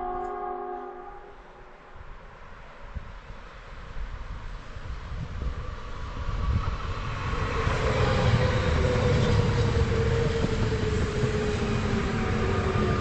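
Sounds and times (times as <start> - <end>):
train whine falling in pitch: 0.0 - 1.7
train rumble: 0.0 - 13.0.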